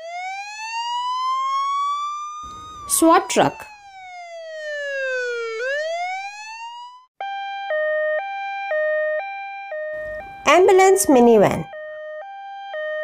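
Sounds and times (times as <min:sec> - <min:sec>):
siren wailing: 0:00.0 - 0:13.0
two-tone hi-lo siren: 0:00.0 - 0:13.0.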